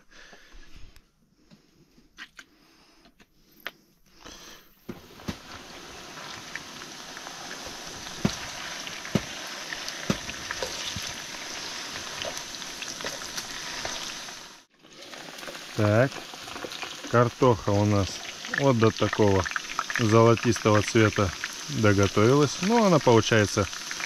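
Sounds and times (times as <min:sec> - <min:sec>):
potatoes sizzling in oil: 0:04.9 - 0:24.0.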